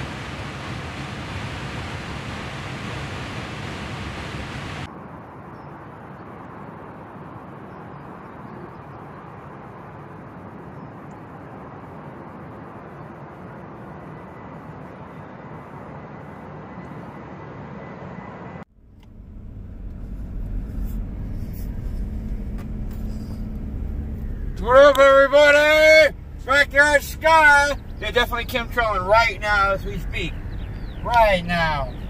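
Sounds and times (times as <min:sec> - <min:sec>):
faint high whine: 0:00.0 - 0:04.9
jet engines roaring: 0:00.0 - 0:04.9, 0:19.0 - 0:32.0
loud steady rushing noise: 0:00.0 - 0:04.9.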